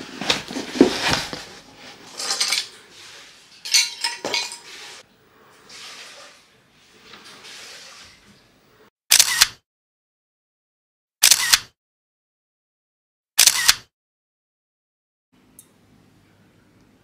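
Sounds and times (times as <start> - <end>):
cardboard and paper rustling: 0.0 - 2.6
camera shutter clicks: 9.1 - 9.6, 11.2 - 11.7, 13.4 - 13.9.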